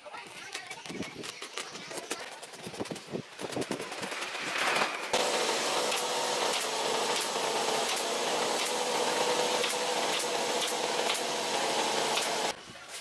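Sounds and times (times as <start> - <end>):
steady mechanical drone: 4.9 - 12.6
pneumatic staple gun firing: 5.2 - 12.5.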